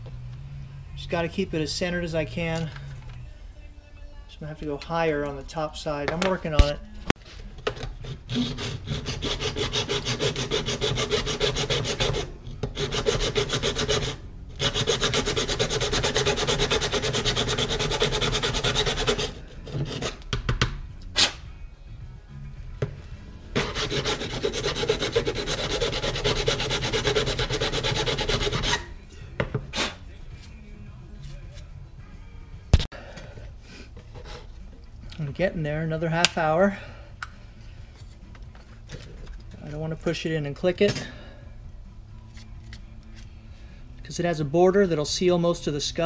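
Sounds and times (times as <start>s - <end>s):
file rasping plastic: 7.7s - 20.2s, 23.6s - 28.9s.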